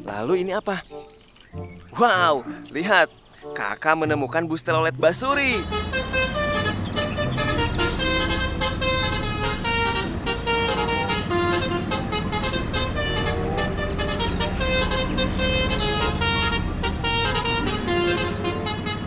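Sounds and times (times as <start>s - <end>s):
road noise: 0.0s - 19.0s
bus engine rumble: 4.1s - 19.0s
multi-tone bus horn tune: 5.2s - 19.0s.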